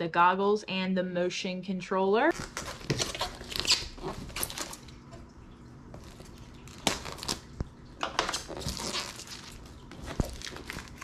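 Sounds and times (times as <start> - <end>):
tape scratching and tearing: 2.4 - 4.8, 6.0 - 7.5, 8.1 - 11.0.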